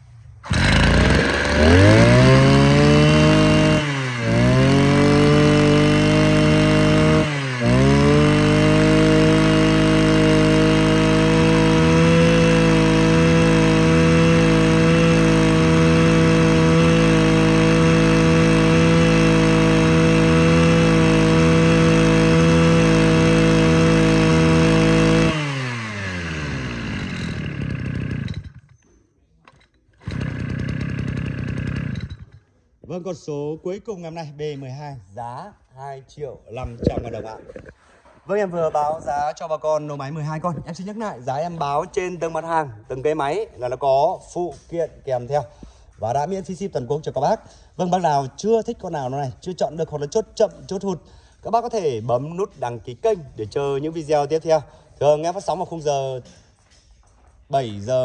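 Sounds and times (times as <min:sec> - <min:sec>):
brush cutter engine revving: 0:00.4 - 0:28.7, 0:29.9 - 0:32.4.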